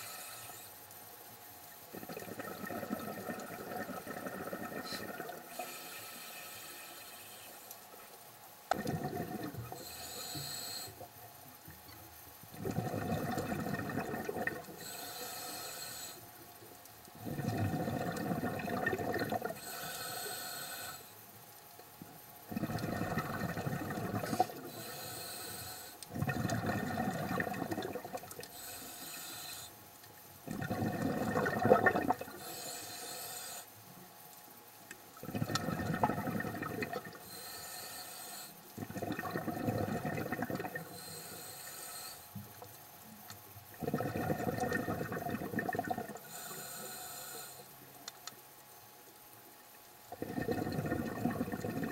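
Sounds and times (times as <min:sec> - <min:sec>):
regulator inhale hiss: 0:00.0 - 0:01.0, 0:04.3 - 0:08.1, 0:08.7 - 0:11.1, 0:14.6 - 0:16.5, 0:19.5 - 0:21.4, 0:24.0 - 0:26.2, 0:28.4 - 0:29.9, 0:32.2 - 0:34.0, 0:37.1 - 0:38.9, 0:40.8 - 0:42.6, 0:46.1 - 0:48.0
gurgling exhaled bubbles: 0:01.9 - 0:05.5, 0:08.7 - 0:09.8, 0:12.5 - 0:14.8, 0:17.2 - 0:19.6, 0:22.5 - 0:24.8, 0:26.1 - 0:28.5, 0:30.4 - 0:32.4, 0:35.2 - 0:37.3, 0:38.8 - 0:41.0, 0:43.7 - 0:46.4, 0:50.1 - 0:51.9.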